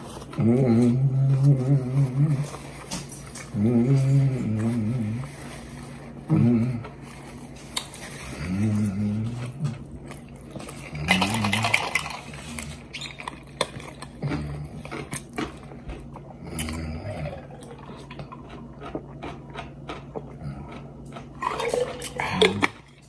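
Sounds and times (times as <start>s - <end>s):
chewing and biting: 0.0s - 23.0s.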